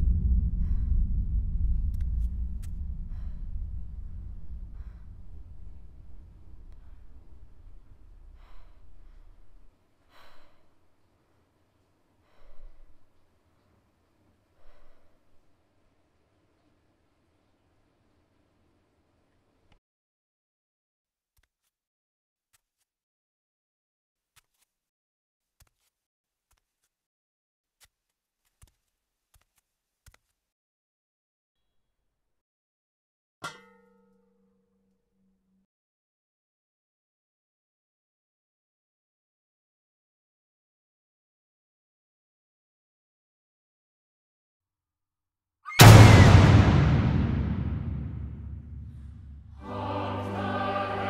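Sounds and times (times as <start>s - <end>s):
low rumble: 0.0s - 9.1s, 45.8s - 49.6s
woman breathing heavily: 8.1s - 10.9s, 12.2s - 13.2s
loud metallic clang: 45.7s - 49.6s.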